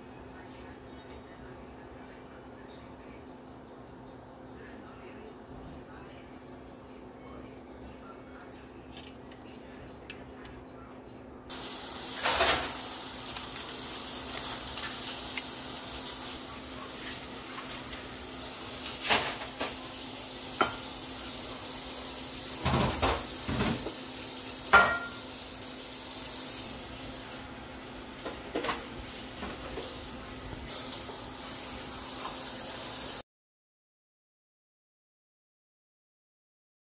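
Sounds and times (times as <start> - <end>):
steady hiss: 11.5 - 16.4
spoons clinking on dishes: 24.7 - 25.2.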